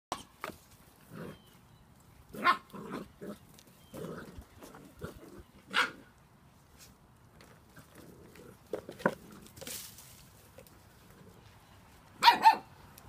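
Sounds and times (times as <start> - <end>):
puppies yipping and barking: 12.2 - 12.8.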